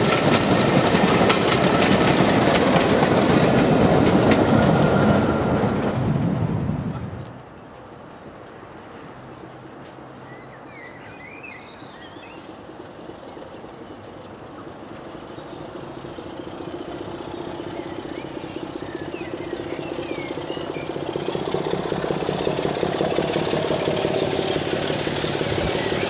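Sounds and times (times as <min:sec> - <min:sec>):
distant locomotive engine drone: 0:00.0 - 0:26.0
birds chirping: 0:10.2 - 0:22.3, 0:25.6 - 0:26.0.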